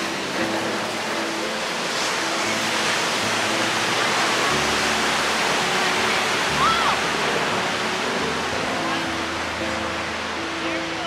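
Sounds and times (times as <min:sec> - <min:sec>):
soft background music: 0:00.0 - 0:11.0
surf breaking on a beach: 0:00.0 - 0:11.0.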